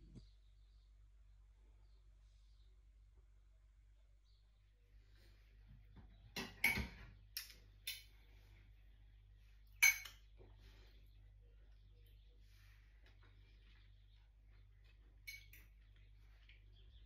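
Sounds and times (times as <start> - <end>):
fork clinking on ceramic plate: 9.8 - 10.2.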